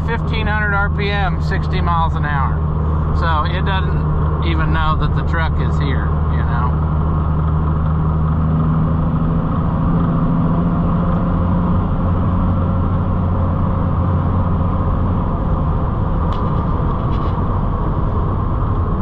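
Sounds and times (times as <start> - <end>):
diesel engine drone: 0.0 - 19.0
road noise: 0.0 - 19.0.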